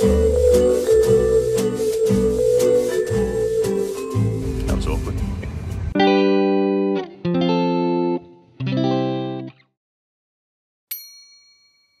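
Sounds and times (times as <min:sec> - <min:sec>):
electric guitar chords: 0:00.0 - 0:09.6.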